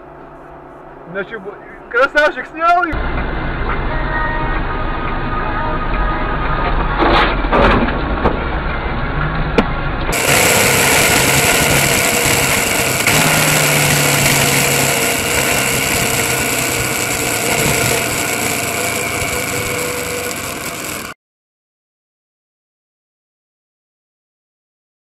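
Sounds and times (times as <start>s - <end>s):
road and wind noise: 2.9s - 21.1s
motorcycle engine running: 7.8s - 21.2s.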